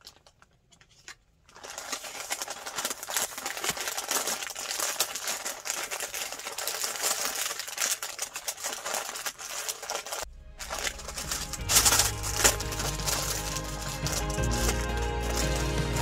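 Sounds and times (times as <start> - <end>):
paper rustling and crinkling: 0.0 - 16.0
background music with bass line: 10.3 - 16.0.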